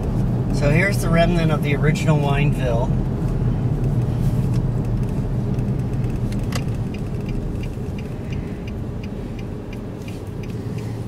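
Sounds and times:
engine and road noise rumble: 0:00.0 - 0:11.0
turn signal clicking: 0:03.2 - 0:11.0.

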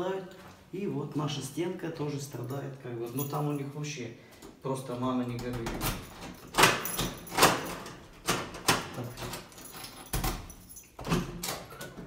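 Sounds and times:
keys jangling: 0:02.2 - 0:03.8, 0:05.8 - 0:12.0.

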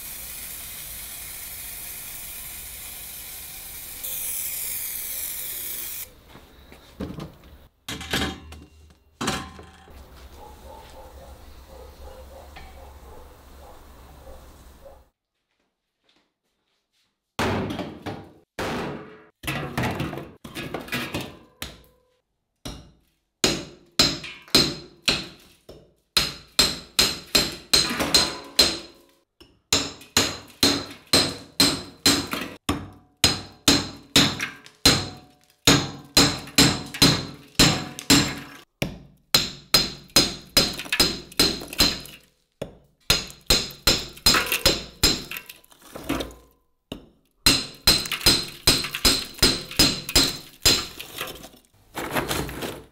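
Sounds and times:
hatchet chopping ice in metal pot: 0:22.6 - 0:25.4, 0:26.2 - 0:52.9.

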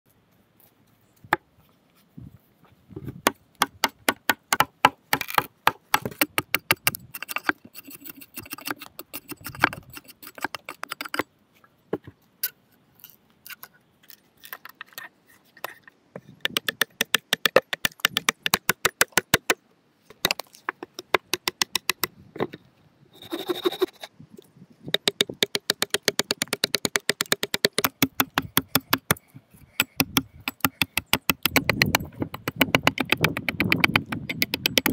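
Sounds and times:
cutting and chopping wood: 0:02.9 - 0:11.3, 0:14.4 - 0:22.6, 0:24.9 - 0:34.9.

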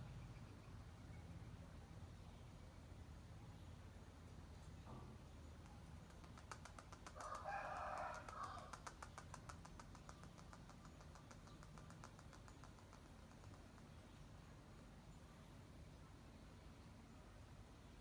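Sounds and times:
rapid faint clicks: 0:05.4 - 0:14.2
faint rooster crow: 0:07.1 - 0:09.0.

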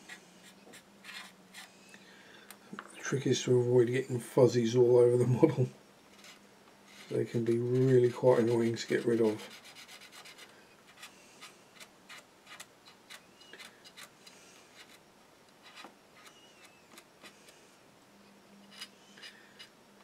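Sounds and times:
faint squeaks: 0:15.6 - 0:17.5, 0:18.2 - 0:19.8.

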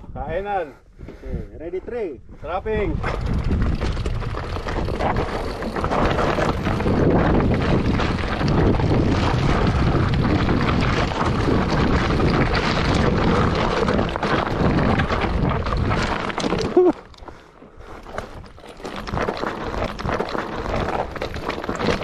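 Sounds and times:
wind rushing over microphone: 0:02.2 - 0:16.8
bike clattering: 0:03.0 - 0:17.4
tyres crunching over stones: 0:03.0 - 0:22.0.

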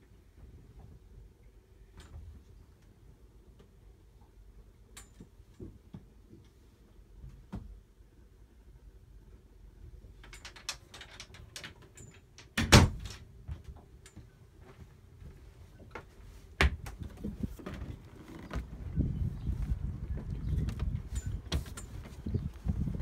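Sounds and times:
knocks and clicks in a cabin: 0:04.9 - 0:06.6, 0:07.2 - 0:07.8, 0:10.2 - 0:18.8
wind rumble on microphone: 0:16.6 - 0:23.0.

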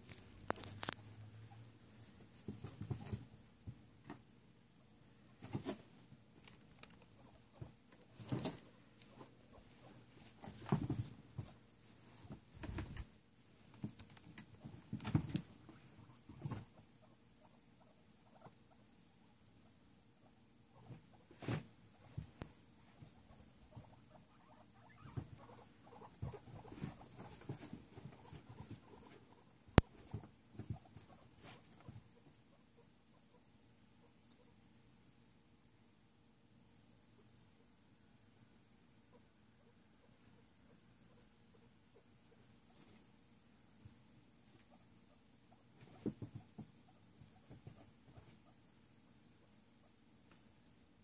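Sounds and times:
guinea pig squeaks: 0:06.5 - 0:11.0, 0:14.1 - 0:18.9, 0:20.2 - 0:34.6, 0:39.1 - 0:43.0, 0:44.5 - 0:48.7.

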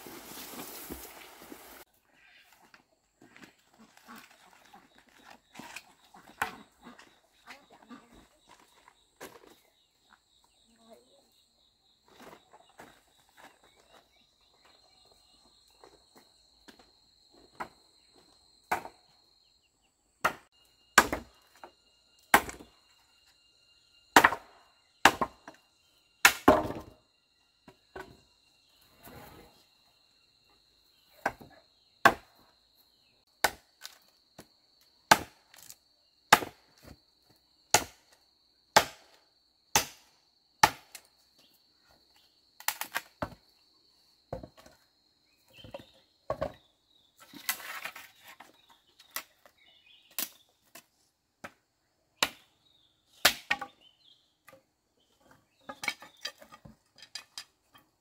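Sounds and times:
blade chopping wood: 0:22.3 - 0:22.7, 0:33.4 - 0:34.0, 0:35.1 - 0:35.7, 0:37.7 - 0:38.0, 0:38.8 - 0:41.0.

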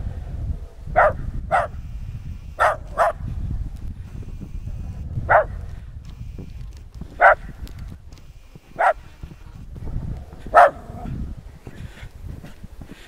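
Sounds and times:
dog barking: 0:00.9 - 0:01.8, 0:02.6 - 0:03.2, 0:05.3 - 0:05.6, 0:07.2 - 0:07.5, 0:08.8 - 0:09.0, 0:10.5 - 0:11.1.

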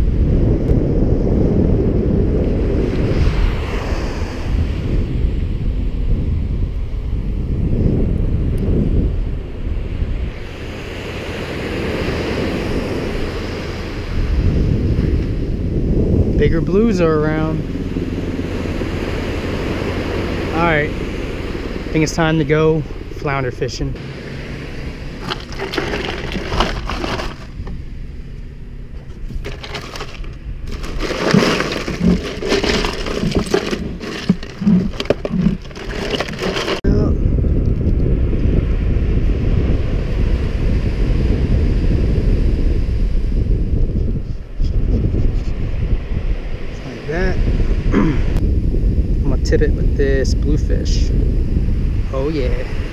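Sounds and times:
wind buffeting microphone: 0:00.0 - 0:52.9
ocean surf breaking: 0:02.6 - 0:05.0, 0:09.8 - 0:15.4, 0:16.5 - 0:27.8, 0:29.2 - 0:36.8
ice crunching and rattling: 0:25.2 - 0:27.6, 0:29.0 - 0:36.8
dull knocks against cooler: 0:29.4 - 0:36.8.

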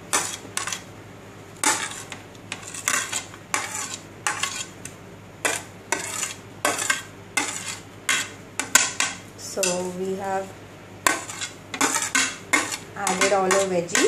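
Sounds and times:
food scraped off ceramic plate: 0:01.6 - 0:04.8, 0:05.5 - 0:09.0, 0:11.1 - 0:13.6.

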